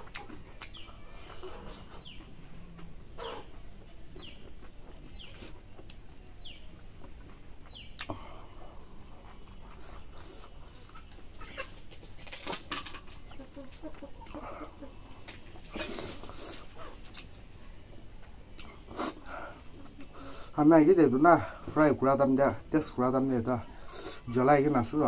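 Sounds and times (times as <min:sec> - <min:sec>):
chewing and mouth smacks: 0:00.0 - 0:08.2, 0:09.2 - 0:14.5, 0:15.1 - 0:17.4, 0:18.2 - 0:20.2.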